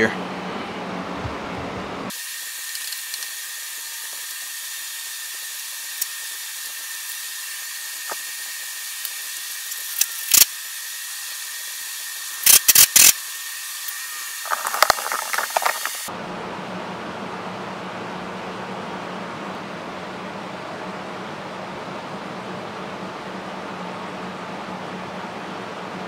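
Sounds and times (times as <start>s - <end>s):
sharp clicks: 9.9s - 10.5s, 12.4s - 13.2s
steady hiss: 14.4s - 16.1s.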